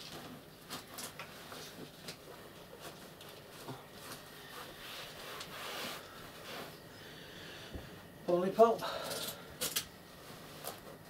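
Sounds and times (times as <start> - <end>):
fabric rustling: 0.0 - 6.9.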